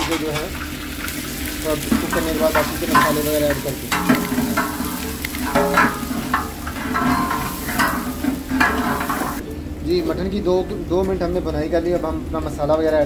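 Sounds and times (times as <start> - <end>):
meat and onions sizzling: 0.0 - 9.4
metal spatula scraping pot: 1.8 - 9.4.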